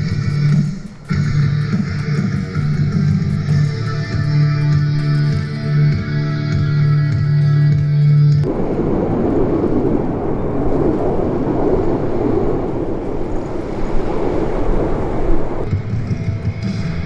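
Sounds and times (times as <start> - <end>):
rock music: 0.0 - 8.4, 15.7 - 17.0
jet aircraft engine roar: 8.4 - 15.7.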